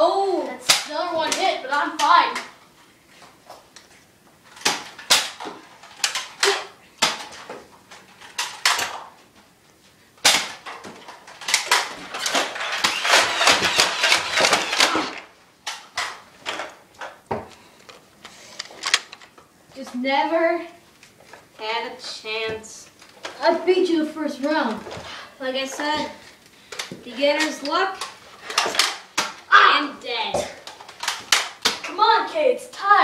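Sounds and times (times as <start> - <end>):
toy blaster clicks and knocks: 10.2 - 16.7.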